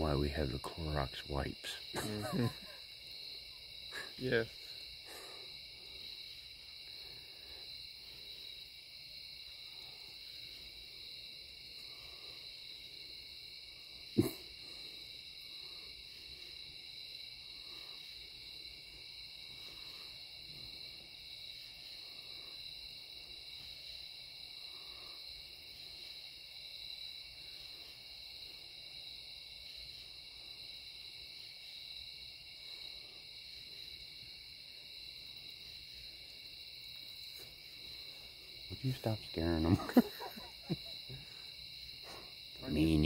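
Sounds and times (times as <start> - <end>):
night insect chorus: 0.0 - 43.0.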